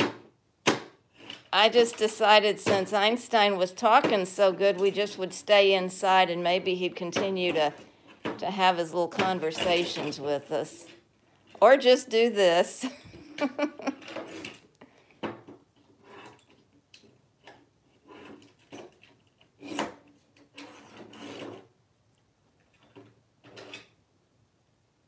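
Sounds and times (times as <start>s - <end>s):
toy scraping and knocking on wood: 1.1s - 3.2s, 7.0s - 11.7s, 13.9s - 21.7s, 22.7s - 24.0s.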